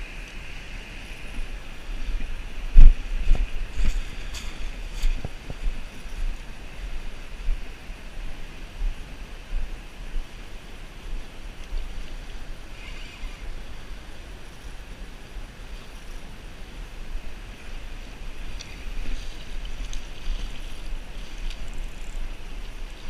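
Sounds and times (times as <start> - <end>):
wind buffeting microphone: 0.0 - 15.6
river water rushing: 0.0 - 23.0.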